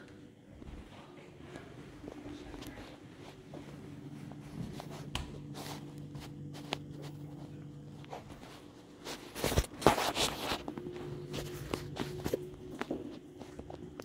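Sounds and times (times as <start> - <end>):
steady low hum: 0.0 - 14.0
phone rustling against clothing: 2.3 - 14.0
boots on wooden floor: 3.4 - 7.2.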